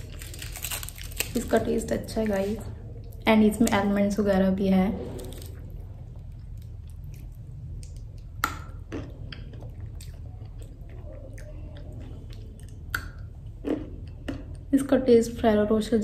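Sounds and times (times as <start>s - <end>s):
steady low hum: 0.0s - 16.0s
person chewing: 5.2s - 14.7s
mouth clicks and smacks: 6.4s - 14.3s.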